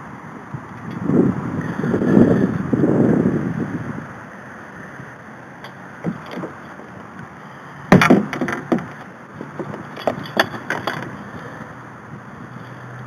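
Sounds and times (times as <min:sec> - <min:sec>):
knocks against plastic kayak hull: 0:07.9 - 0:10.9.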